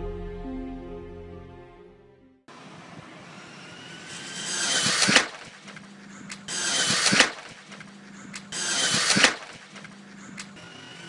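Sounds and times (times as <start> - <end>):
rc car motor whine: 3.2 - 5.8, 6.5 - 7.3, 8.5 - 9.4, 10.6 - 11.0
sharp crack of impact: 4.8 - 5.8, 6.8 - 7.9, 9.0 - 9.8.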